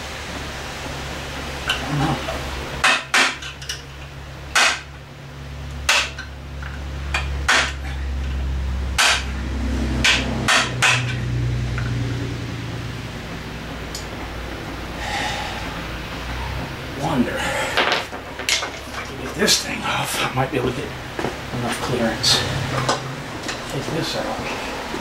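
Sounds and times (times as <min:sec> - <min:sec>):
low steady hum: 0:00.0 - 0:25.0
hammer striking metal bracket: 0:04.6 - 0:04.9, 0:05.9 - 0:06.2, 0:07.2 - 0:07.8, 0:09.0 - 0:09.3, 0:10.0 - 0:11.2.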